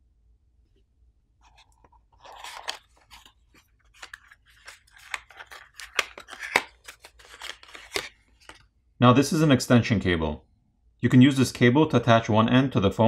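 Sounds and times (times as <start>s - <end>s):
plastic packaging crinkling: 1.4s - 8.6s.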